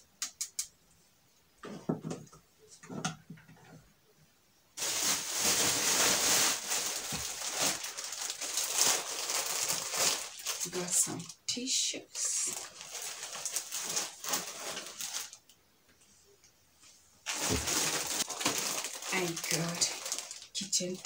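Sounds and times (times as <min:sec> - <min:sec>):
plastic packaging crackling: 0:04.8 - 0:11.4, 0:12.2 - 0:15.6, 0:17.2 - 0:21.0.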